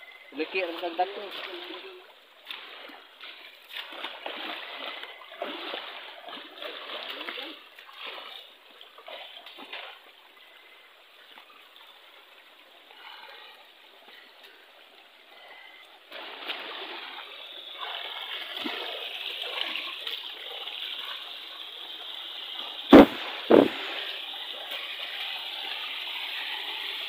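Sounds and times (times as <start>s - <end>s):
river water splashing over rocks: 0.4s - 10.3s, 16.0s - 27.0s
sharp knock: 22.9s - 23.8s.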